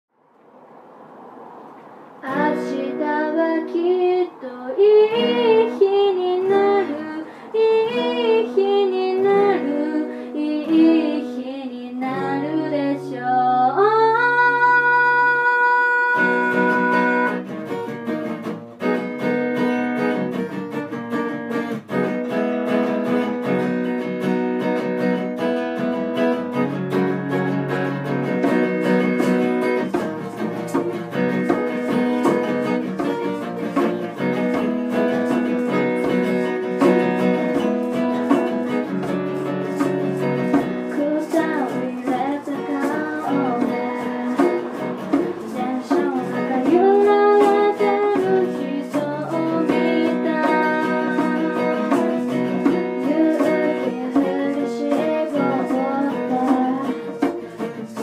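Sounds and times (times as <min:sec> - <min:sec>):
acoustic guitar strumming: 0:00.6 - 0:58.0
girl singing: 0:02.2 - 0:17.4, 0:34.2 - 0:58.0
shaker: 0:21.8 - 0:58.0
djembe hand-drum strokes: 0:26.8 - 0:58.0.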